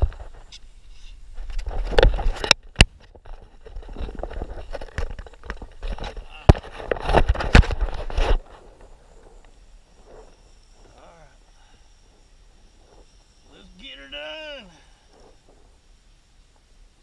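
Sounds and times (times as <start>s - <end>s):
camera rubbing on housing: 3.2s - 10.9s.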